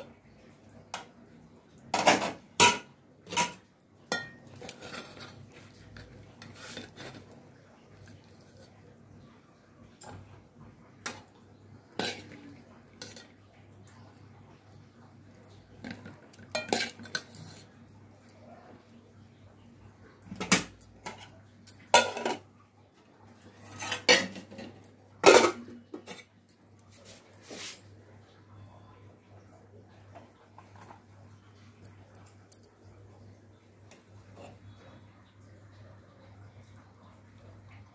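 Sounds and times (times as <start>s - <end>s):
spoon scraping a metal pot: 2.2s - 7.4s, 11.9s - 13.3s, 23.6s - 26.2s.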